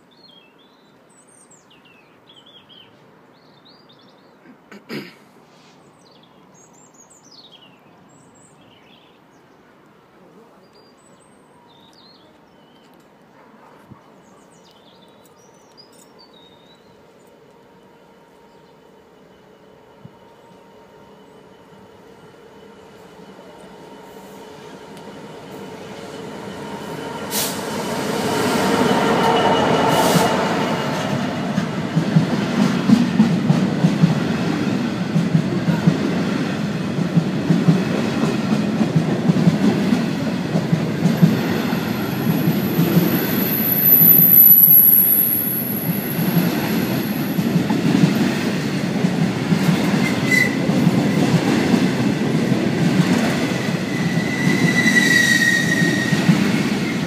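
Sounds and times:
diesel locomotive passing: 0:16.1 - 0:57.0
wheel squeals: 0:54.1 - 0:56.3.

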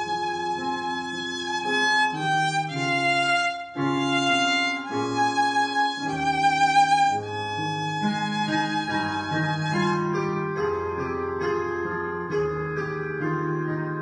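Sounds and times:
violin playing long bowed notes: 0:00.0 - 0:10.2
low steady accompaniment: 0:00.0 - 0:14.0.

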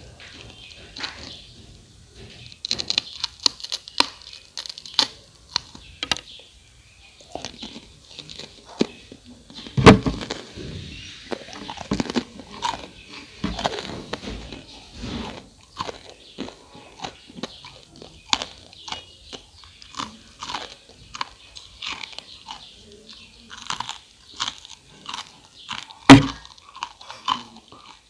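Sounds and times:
crunching and chewing crispy food: 0:00.0 - 0:28.0
sharp knock: 0:26.1 - 0:26.4.

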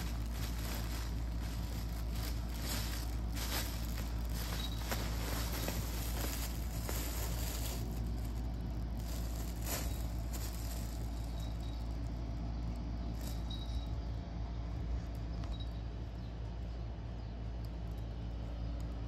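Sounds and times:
fabric tunnel rustling: 0:00.0 - 0:12.2
low hum: 0:00.0 - 0:19.0.

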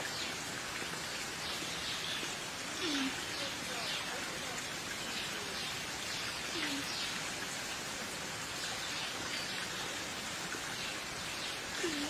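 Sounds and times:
steady hiss: 0:00.0 - 0:12.0
faint bird calls: 0:02.7 - 0:04.1.

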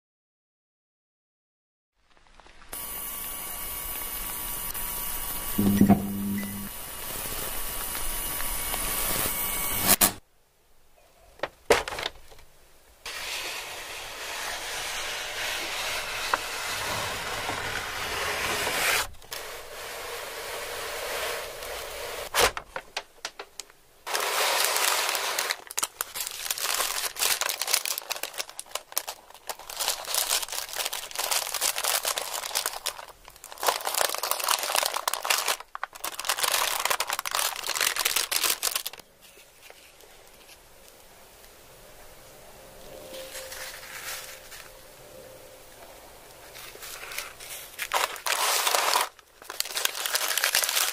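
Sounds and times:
package wrapper crinkling: 0:22.4 - 0:40.4, 0:46.5 - 0:50.9.

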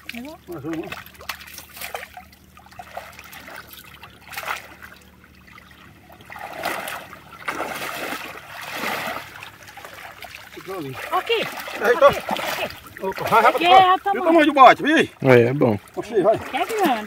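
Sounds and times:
pond water splashing: 0:00.0 - 0:17.0.

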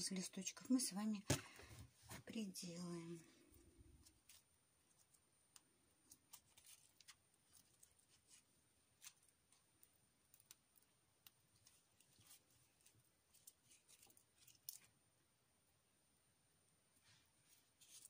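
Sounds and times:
faint clicks and rustles: 0:03.3 - 0:15.0.

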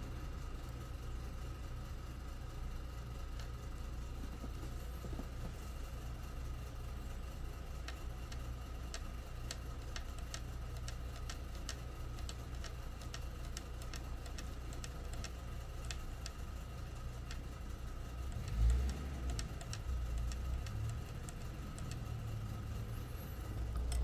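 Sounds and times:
low electrical hum: 0:00.0 - 0:24.0
light sharp clicks: 0:07.8 - 0:16.4, 0:18.3 - 0:22.2.

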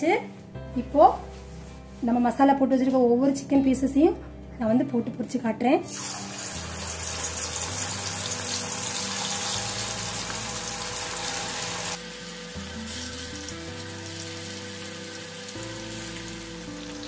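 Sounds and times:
chicken deep-frying in sizzling oil: 0:05.9 - 0:17.0.

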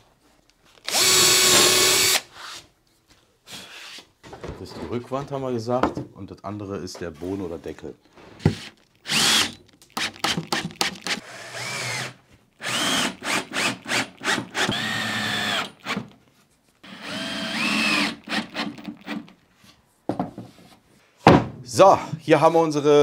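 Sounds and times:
cordless drill whining: 0:00.8 - 0:02.4, 0:08.4 - 0:16.1, 0:16.8 - 0:19.4.

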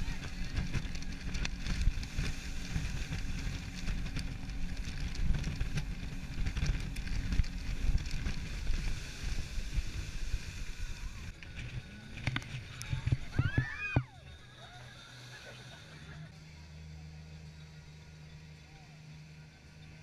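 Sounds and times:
wind buffeting microphone: 0:00.0 - 0:14.1
boat engine humming: 0:00.0 - 0:20.0.

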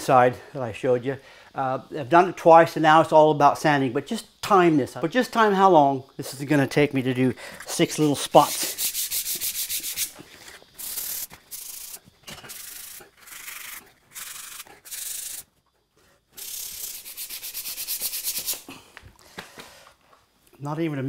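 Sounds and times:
hand sanding scratchy strokes: 0:07.9 - 0:15.5, 0:16.4 - 0:18.7.

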